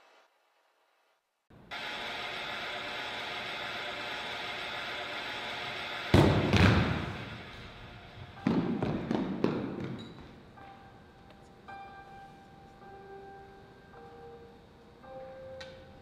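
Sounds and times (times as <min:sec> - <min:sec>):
loud thuds ringing in a hall: 0:06.1 - 0:07.6, 0:08.2 - 0:10.8.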